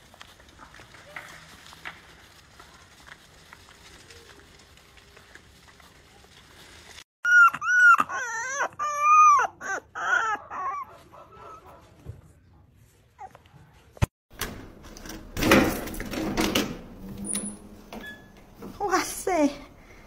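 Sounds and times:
young animal crying: 0:07.2 - 0:11.6.

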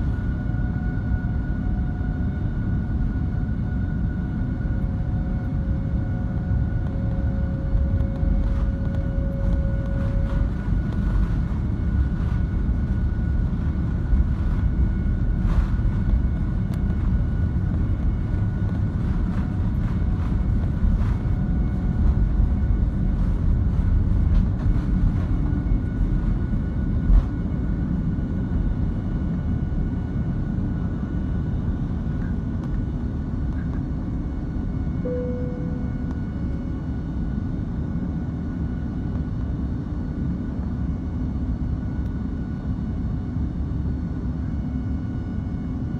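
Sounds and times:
whine: 0:00.0 - 0:39.5
jet engines rumbling: 0:00.0 - 0:45.9.

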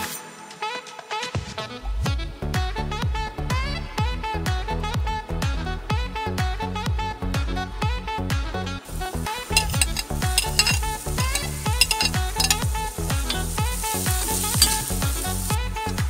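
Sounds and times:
onion sizzling in hot oil: 0:08.8 - 0:16.0
metal spatula scraping a pan: 0:09.0 - 0:16.0.

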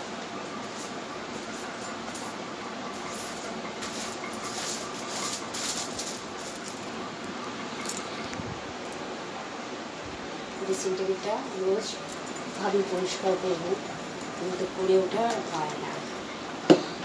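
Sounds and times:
steady background whir: 0:00.0 - 0:17.0
cloth rustling: 0:03.0 - 0:07.1.

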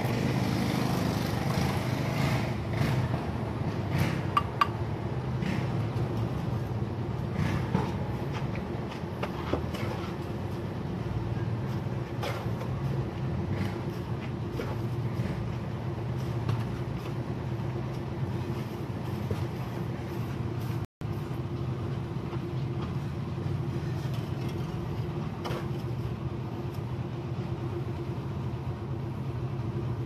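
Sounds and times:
engine droning: 0:00.0 - 0:30.0.

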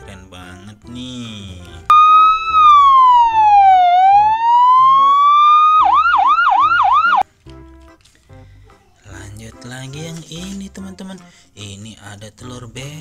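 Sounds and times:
electronic ambulance siren: 0:01.9 - 0:07.2.

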